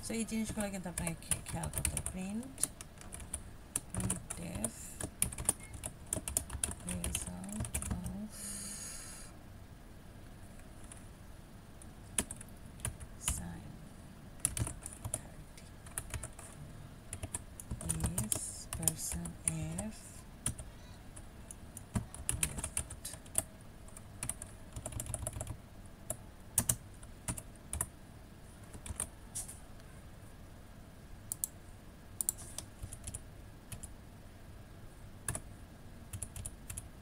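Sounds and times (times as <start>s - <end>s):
computer keyboard typing: 0.2s - 8.2s, 10.8s - 11.0s, 11.8s - 13.6s, 14.4s - 27.9s, 28.6s - 29.1s, 31.3s - 31.6s, 32.2s - 33.9s, 35.2s - 35.5s, 36.1s - 36.9s.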